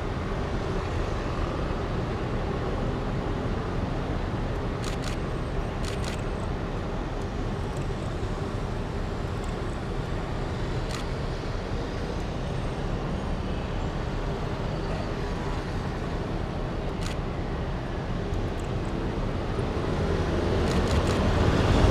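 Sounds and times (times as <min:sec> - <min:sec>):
sharp clicks: 0:20.6 - 0:21.2.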